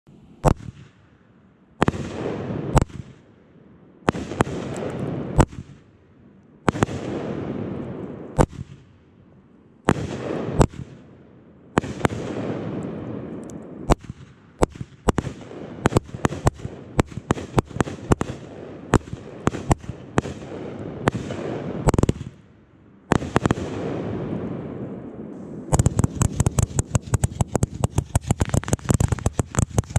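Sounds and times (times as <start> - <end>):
firework cake shots: 25.7 - 29.9.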